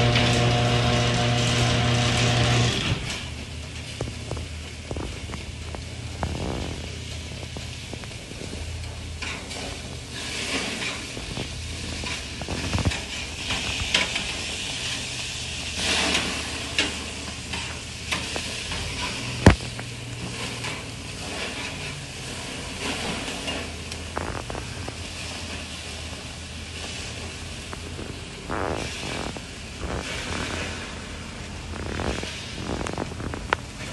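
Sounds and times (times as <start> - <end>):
patties sizzling on a grill: 0.0 - 33.9
metal spatula scraping grate: 9.2 - 19.5, 20.2 - 23.9.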